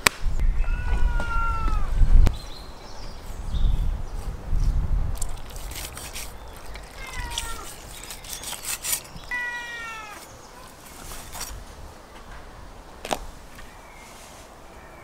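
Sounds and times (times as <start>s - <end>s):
cat meowing: 0.6s - 1.9s, 6.9s - 7.7s, 9.3s - 10.2s.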